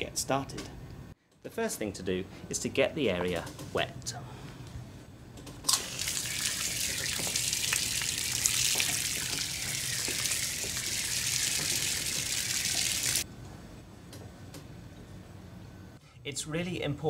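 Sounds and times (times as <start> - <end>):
hose water splashing on deck: 5.7 - 13.2.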